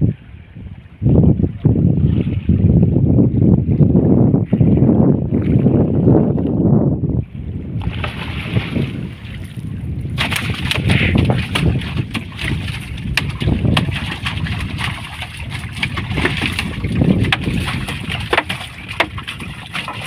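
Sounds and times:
wind: 0.0 - 20.0
water washing around boat: 7.7 - 20.0
fish thrashing on boat floor: 10.1 - 20.0.

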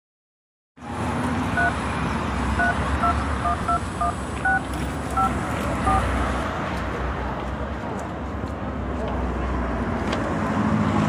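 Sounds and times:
phone keypad beeps: 1.6 - 1.8, 2.6 - 4.6, 5.2 - 6.1.

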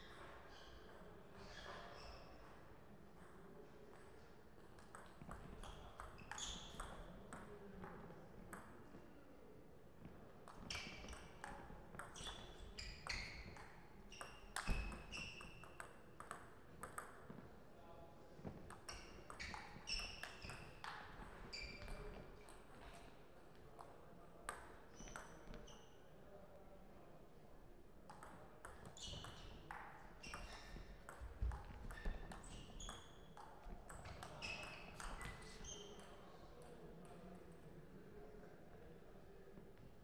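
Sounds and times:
table tennis ball pinging: 13.5 - 17.3.

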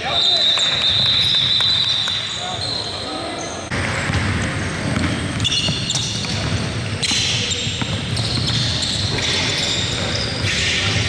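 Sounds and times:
basketball bouncing on court: 3.8 - 11.0.

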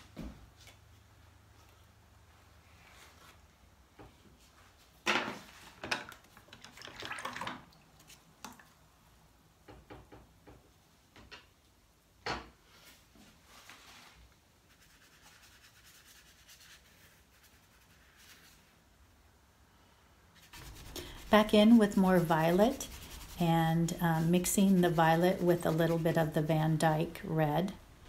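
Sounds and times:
faint room noise: 0.0 - 28.0
scratchy rubbing: 14.7 - 18.6, 20.4 - 27.2.

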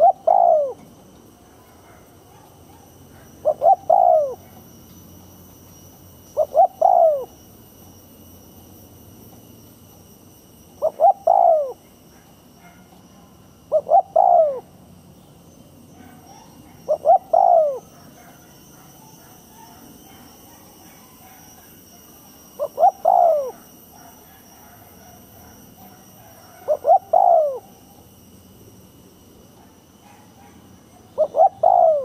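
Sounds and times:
dove cooing: 0.0 - 4.7, 6.3 - 7.4, 10.8 - 12.9, 13.6 - 14.8, 16.0 - 21.7, 22.5 - 28.1, 30.1 - 32.0.

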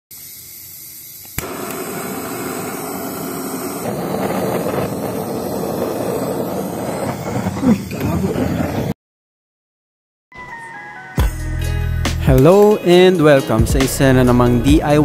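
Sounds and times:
torch flame hissing: 0.1 - 9.0
gas torch ignition click: 0.2 - 6.3.

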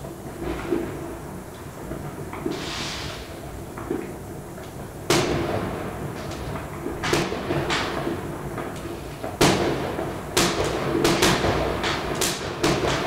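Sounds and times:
fireworks bangs with echo: 5.0 - 13.0.

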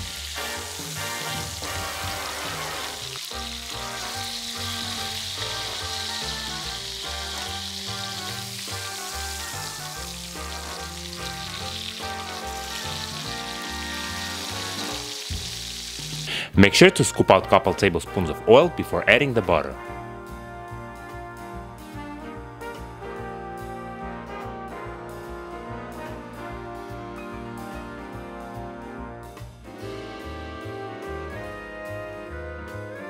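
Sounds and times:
steaks sizzling in oil: 0.0 - 16.3
background music: 0.0 - 33.0.

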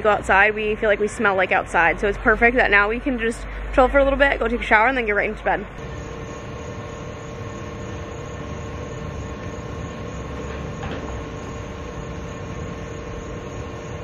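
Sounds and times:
mechanical drone: 5.7 - 14.0.

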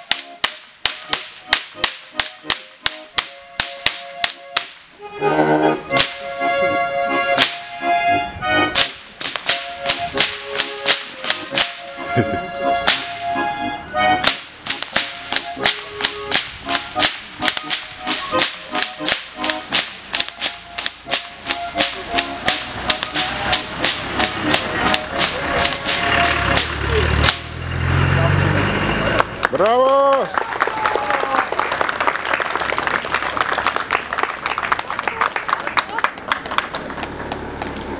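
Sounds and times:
whips cracking: 0.0 - 4.9, 5.9 - 6.2, 7.4 - 7.6, 8.8 - 11.9, 12.8 - 13.3, 14.2 - 27.6
music with held notes: 0.0 - 29.2.

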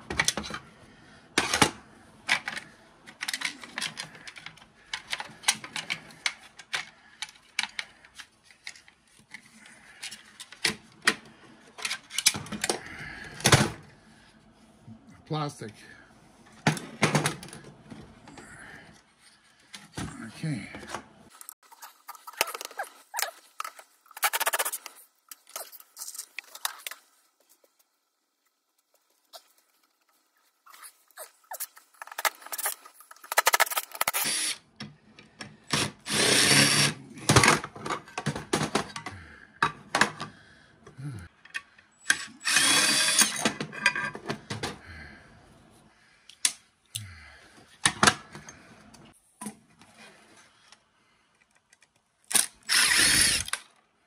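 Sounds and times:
cordless drill running: 34.0 - 34.6, 35.8 - 37.0, 42.4 - 43.4, 52.6 - 53.6.

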